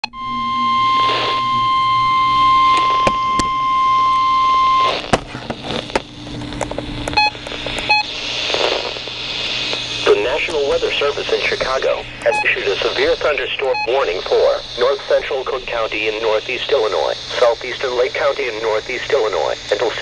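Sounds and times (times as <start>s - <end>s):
radio alarm tone: 0.0s - 5.2s, 7.1s - 20.0s
short electronic beeps: 7.2s - 8.1s, 12.3s - 12.6s, 13.6s - 14.0s.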